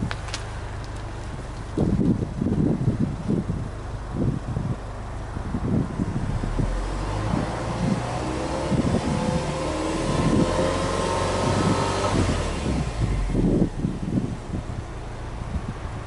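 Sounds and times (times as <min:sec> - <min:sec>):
wind buffeting microphone: 0:00.0 - 0:16.0
car engine revving: 0:05.6 - 0:15.6.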